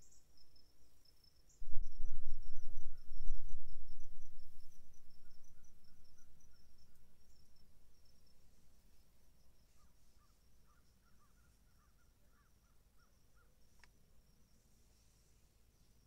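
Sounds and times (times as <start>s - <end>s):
crickets trilling: 0.0s - 14.6s
faint bird calls: 9.6s - 13.9s.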